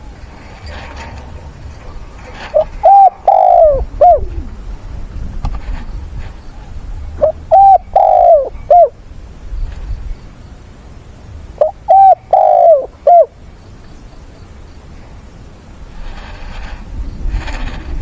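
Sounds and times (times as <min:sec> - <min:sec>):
dove cooing: 0:01.8 - 0:04.6, 0:06.5 - 0:09.0, 0:11.6 - 0:13.4.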